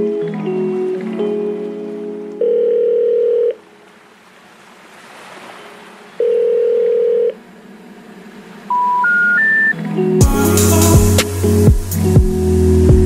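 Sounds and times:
telephone ringback tone: 0:02.4 - 0:03.6, 0:06.2 - 0:07.4, 0:08.7 - 0:09.8
rising three-tone beeps: 0:08.7 - 0:09.8.

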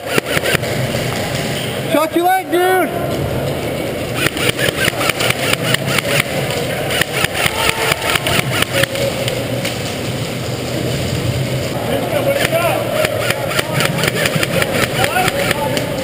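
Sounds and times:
airsoft gun shots: 0:00.0 - 0:00.8, 0:04.2 - 0:09.0, 0:12.4 - 0:15.7.

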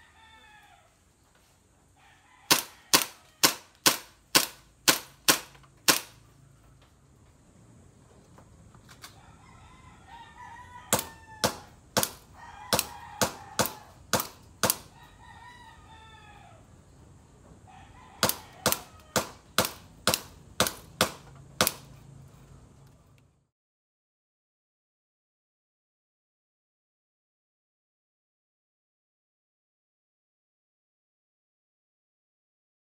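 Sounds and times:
rooster crowing: 0:00.0 - 0:01.2, 0:01.9 - 0:03.8, 0:09.0 - 0:17.0, 0:17.6 - 0:19.6
airsoft pistol shots: 0:02.5 - 0:06.2, 0:10.9 - 0:14.9, 0:18.2 - 0:21.9
shots hitting metal targets: 0:02.5 - 0:06.2, 0:10.9 - 0:14.9, 0:18.2 - 0:21.9.

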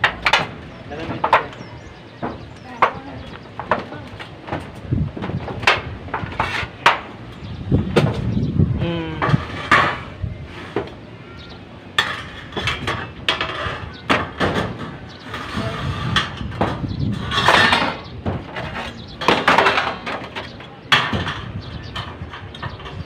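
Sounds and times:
metal tools clanking: 0:11.3 - 0:23.0.

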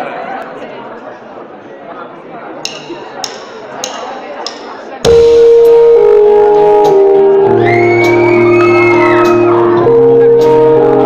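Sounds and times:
pop band playing loud: 0:05.1 - 0:11.0.

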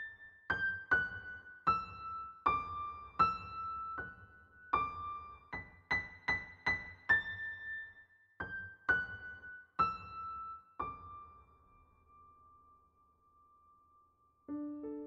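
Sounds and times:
slow high piano notes: 0:12.0 - 0:15.0.

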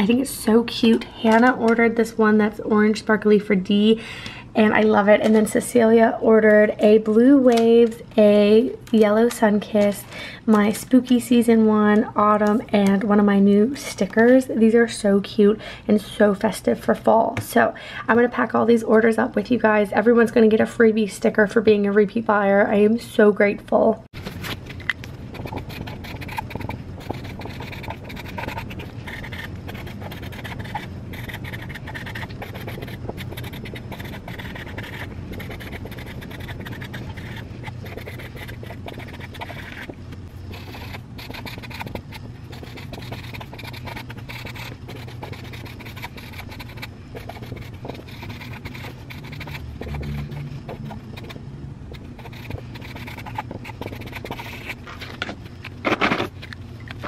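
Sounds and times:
low steady hum: 0:00.0 - 0:57.0
marker scratching on paper: 0:24.3 - 0:55.0.

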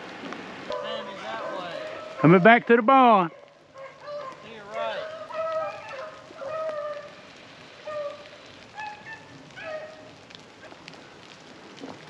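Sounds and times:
dogs baying: 0:00.7 - 0:07.2, 0:07.8 - 0:10.1
dry leaves rustling underfoot: 0:03.5 - 0:12.0.

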